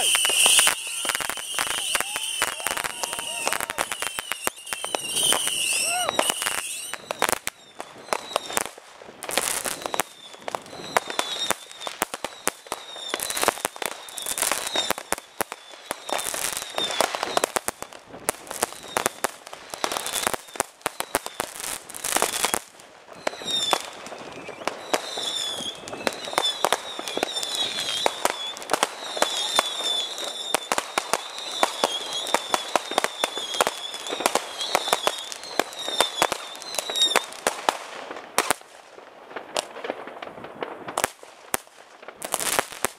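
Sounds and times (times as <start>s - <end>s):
warbling firework whistles: 0.0s - 8.7s, 9.4s - 17.7s, 18.6s - 21.6s, 23.2s - 37.3s
fireworks bangs and crackles: 0.0s - 42.9s.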